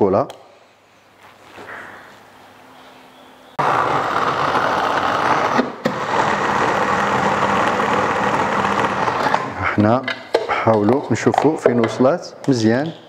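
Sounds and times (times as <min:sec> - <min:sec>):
electric mini chopper grinding: 0:03.6 - 0:09.5.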